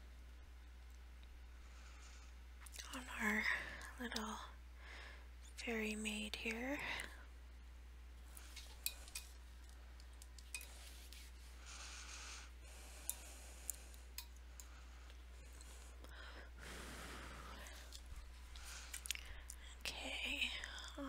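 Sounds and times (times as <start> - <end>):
low steady hum: 0.0 - 21.0
soft breath-like hisses: 10.6 - 19.8.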